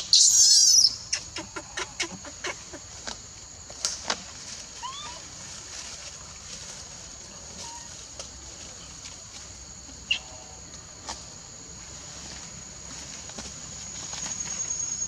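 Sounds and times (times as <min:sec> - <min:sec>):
high insect drone: 0:00.0 - 0:15.0
short high squeak: 0:14.2 - 0:15.0.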